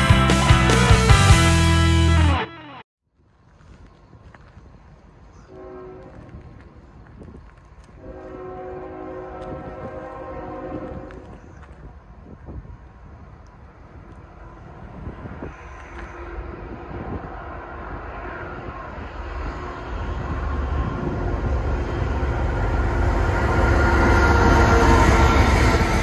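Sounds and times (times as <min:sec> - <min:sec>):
diesel locomotive engines: 0:03.2 - 0:26.0
train wheels rolling: 0:13.0 - 0:26.0.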